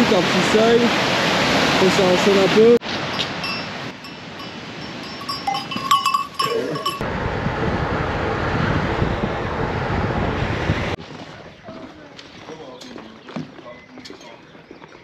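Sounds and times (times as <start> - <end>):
goat bells ringing: 3.2 - 7.0.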